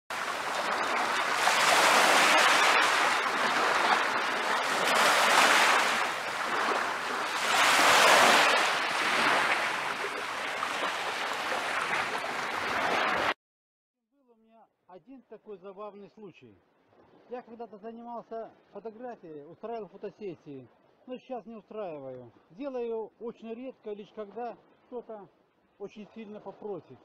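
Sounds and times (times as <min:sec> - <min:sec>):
small waves washing onto beach: 0:00.1 - 0:13.4.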